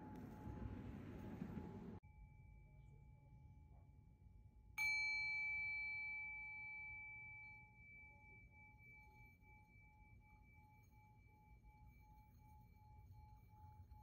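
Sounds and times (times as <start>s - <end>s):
faint steady tone: 0.0s - 14.0s
small metal chime ringing: 4.8s - 14.0s.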